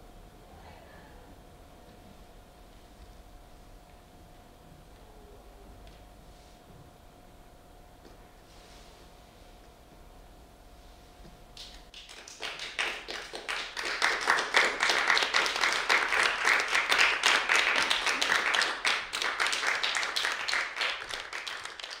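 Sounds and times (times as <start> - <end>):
audience applauding: 11.6 - 22.0.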